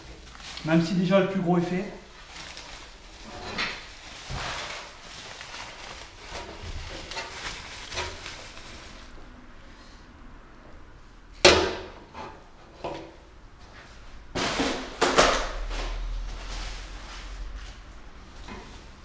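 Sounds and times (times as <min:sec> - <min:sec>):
bubble wrap crinkling: 0:00.0 - 0:09.3, 0:14.4 - 0:18.0.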